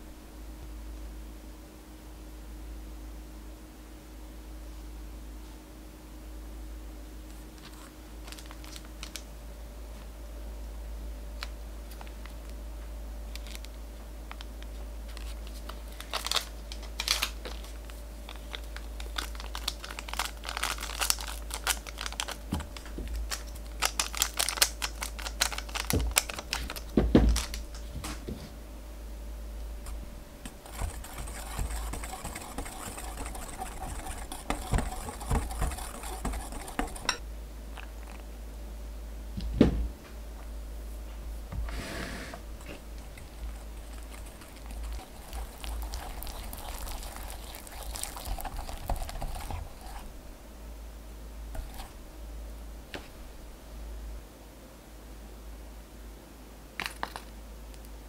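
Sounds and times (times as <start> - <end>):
plastic packet crinkling and tearing: 8.2 - 9.2, 13.3 - 27.8
metal whisk knocking bowl: 30.5 - 37.2.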